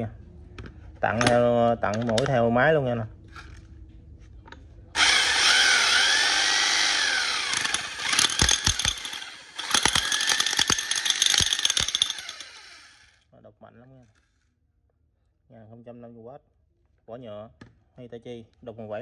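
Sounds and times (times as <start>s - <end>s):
demolition hammer whine and rattling: 5.0s - 13.1s.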